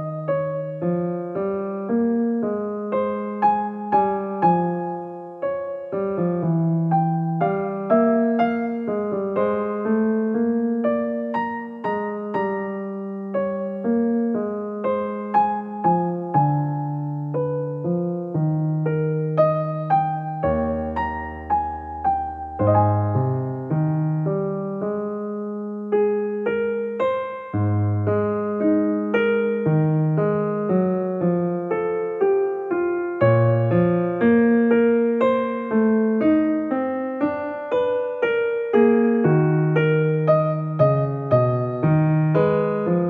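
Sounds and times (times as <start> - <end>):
slow gentle piano music: 0.0 - 43.0.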